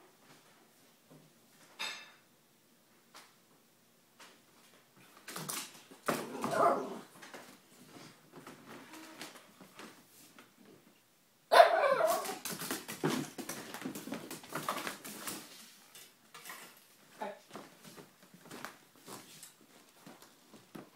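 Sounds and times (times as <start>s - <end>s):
dog barking and yelping: 6.2s - 7.1s, 11.5s - 12.4s
dog whining: 11.6s - 12.4s.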